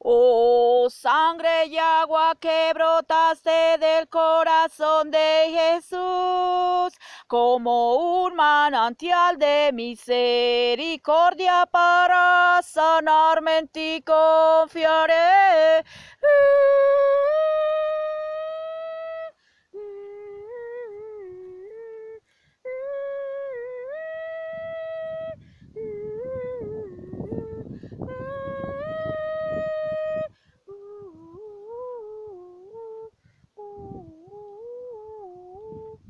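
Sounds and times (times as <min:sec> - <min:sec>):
woman humming: 0:16.3 - 0:36.0
microphone handling rumble: 0:24.6 - 0:30.3.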